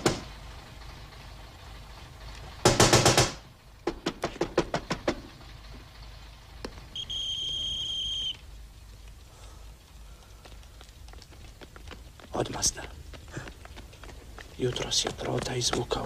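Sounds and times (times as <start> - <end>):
high whistle-like tone: 6.9 - 8.4.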